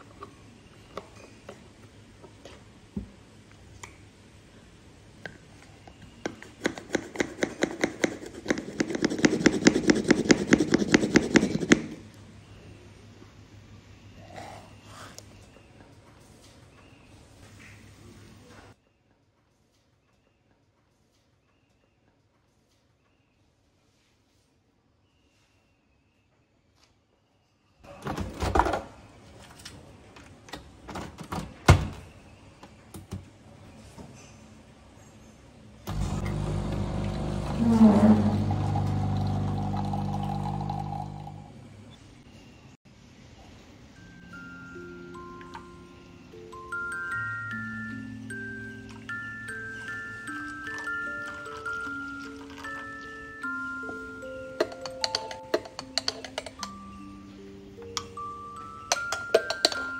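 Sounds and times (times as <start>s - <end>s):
glass mug clicking on metal tray: 54.6s - 56.8s, 58.9s - 59.9s.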